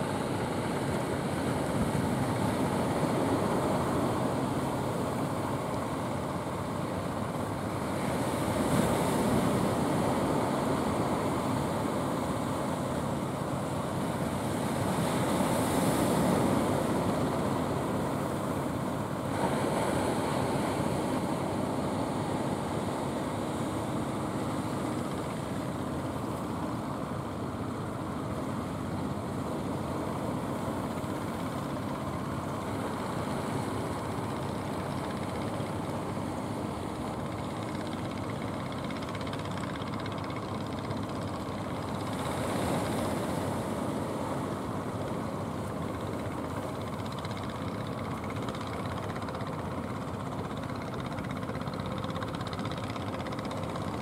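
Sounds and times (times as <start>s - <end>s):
boat engine drone: 0.0s - 54.0s.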